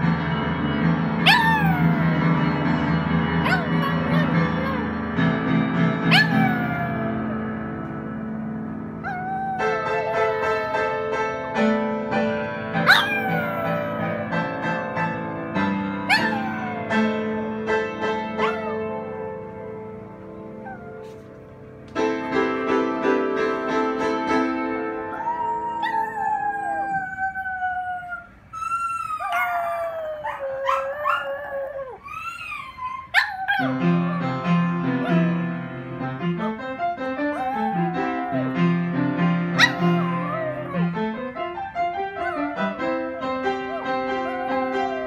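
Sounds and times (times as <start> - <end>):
dog howling: 1.2 - 2.3, 3.4 - 5.0, 6.1 - 7.4, 9.0 - 11.0, 12.9 - 14.3, 16.1 - 17.2, 25.1 - 34.4, 37.2 - 38.7, 39.6 - 41.0, 42.2 - 45.0.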